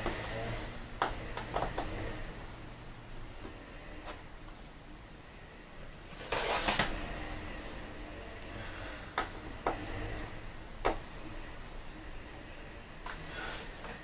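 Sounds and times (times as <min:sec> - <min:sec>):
fabric shade rustling: 0:06.1 - 0:07.9.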